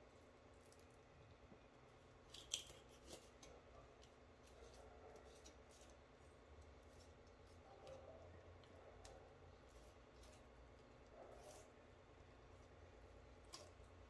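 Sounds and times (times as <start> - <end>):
shears snipping chicken bones: 2.3 - 6.0, 13.4 - 14.0.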